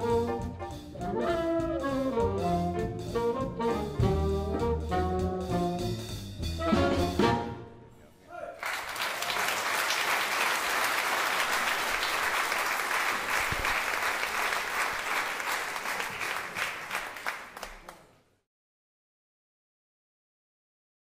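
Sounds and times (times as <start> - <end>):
audience applauding: 8.6 - 18.2.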